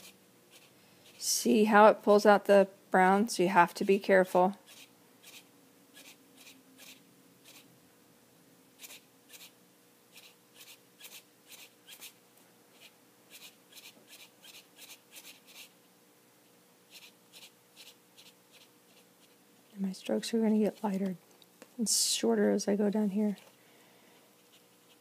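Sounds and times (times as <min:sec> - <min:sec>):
marker strokes on paper: 0:00.0 - 0:01.2.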